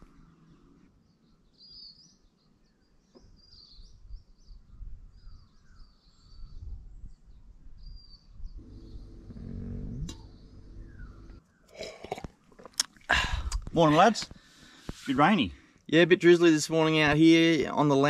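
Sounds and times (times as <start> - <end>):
birds chirping: 0.0 - 12.5
low rumble: 8.6 - 11.4
short low pitched sound: 8.6 - 11.4.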